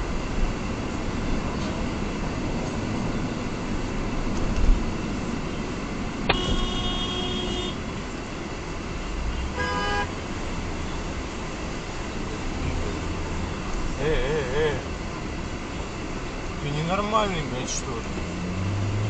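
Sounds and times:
road and engine noise inside car: 0.0 - 19.0
car horn honking: 6.3 - 7.9, 9.3 - 10.2.

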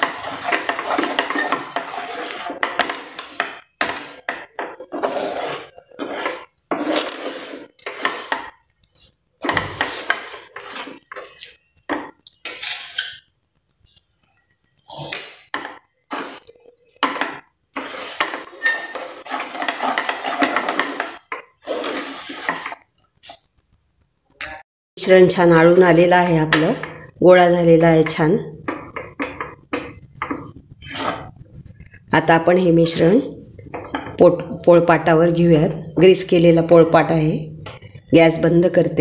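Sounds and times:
spatula scraping frying pan: 0.0 - 8.6, 9.4 - 13.0, 16.0 - 23.4, 25.7 - 35.9.

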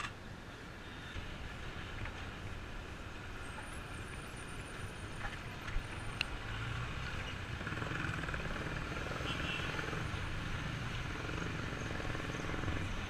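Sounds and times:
road and wind noise: 0.0 - 13.0.

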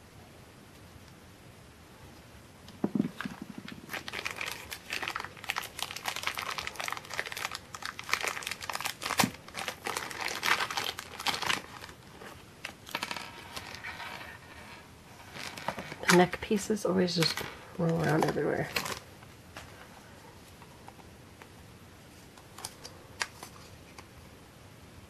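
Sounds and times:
plastic packaging crinkling: 2.8 - 14.4, 15.2 - 19.1.

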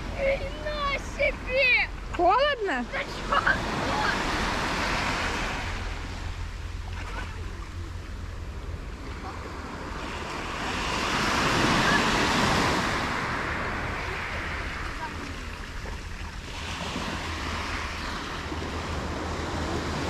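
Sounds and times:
small waves breaking on beach: 0.0 - 7.9, 9.0 - 20.0
wind rumble on microphone: 0.0 - 20.0.

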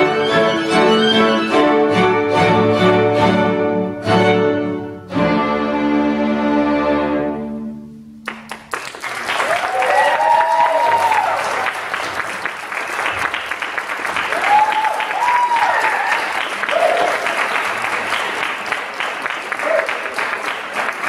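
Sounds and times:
string quartet chord: 0.0 - 8.2
audience applause: 8.3 - 21.0
audience cheers: 9.2 - 11.9, 14.2 - 17.5.

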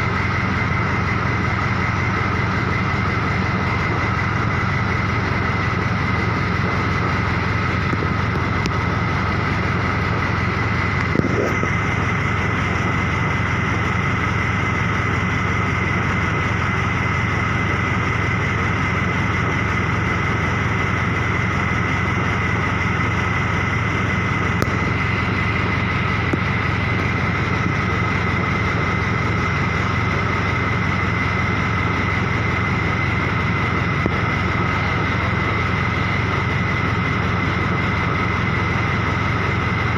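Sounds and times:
engine idling: 0.0 - 39.9
steady high whine: 0.0 - 39.9
faint engine knock: 5.3 - 15.6, 22.0 - 39.9.

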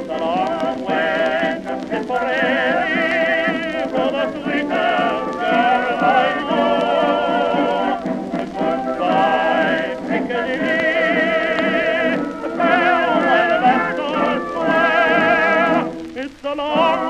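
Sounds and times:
old recording of marching song: 0.0 - 17.0.

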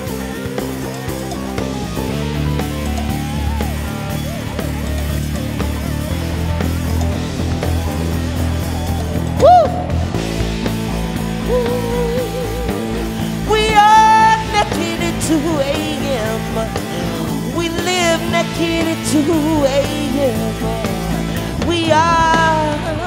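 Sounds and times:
live band playing: 0.0 - 23.0
person singing wordless vocal runs: 11.4 - 23.0.

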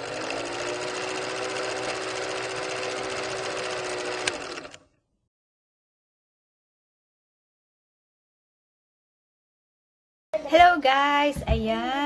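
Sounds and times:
film projector clatter: 0.0 - 4.8
motor hum: 0.0 - 4.8.

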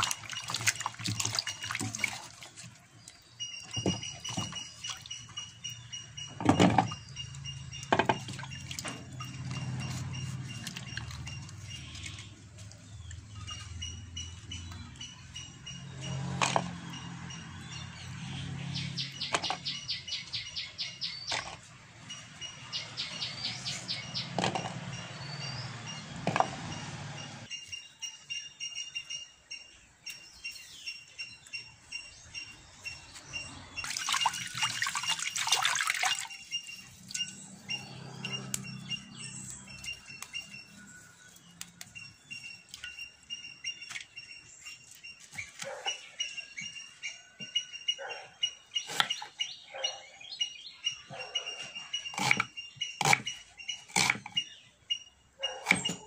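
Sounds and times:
water splashing in a bowl: 0.0 - 5.5, 7.8 - 13.4, 33.8 - 37.4
birds chirping: 0.0 - 56.0.

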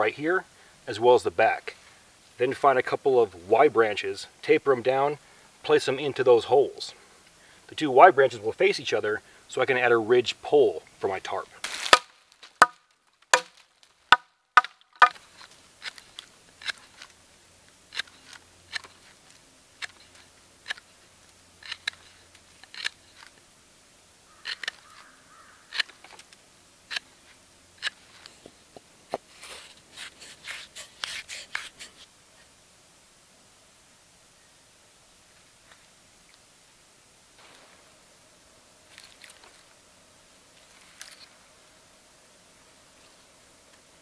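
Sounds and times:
knife carving wood: 15.8 - 17.1, 17.9 - 19.2, 21.6 - 23.3, 24.4 - 25.0, 26.9 - 27.1, 29.1 - 32.1.

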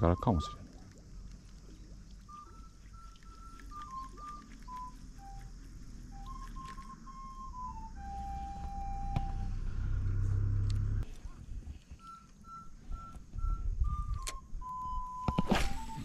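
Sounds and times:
slow whistle-like tune: 2.2 - 10.5, 11.9 - 16.0
low rumble: 4.8 - 11.7
sharp clicks: 13.9 - 15.5.

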